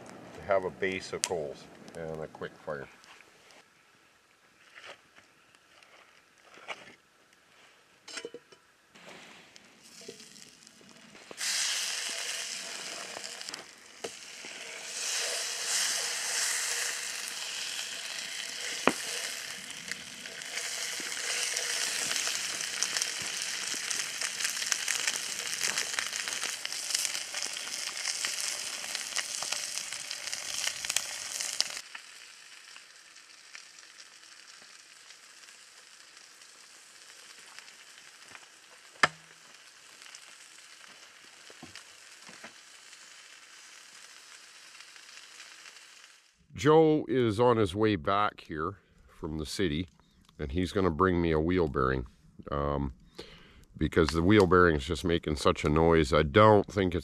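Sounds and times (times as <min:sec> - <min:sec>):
fish sizzling in a pan: 0:09.7 - 0:46.4.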